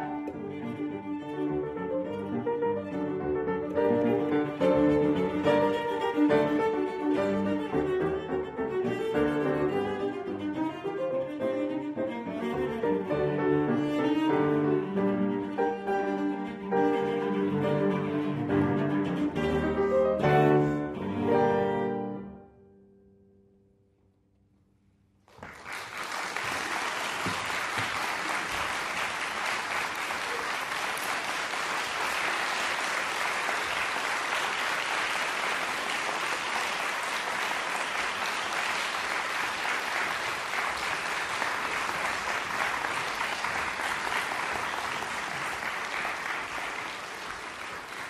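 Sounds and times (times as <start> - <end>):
audience applauding: 25.3 - 48.0.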